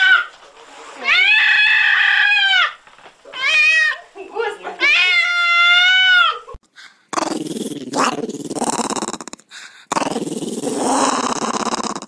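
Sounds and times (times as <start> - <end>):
small dog vocalizing: 7.1 - 12.0.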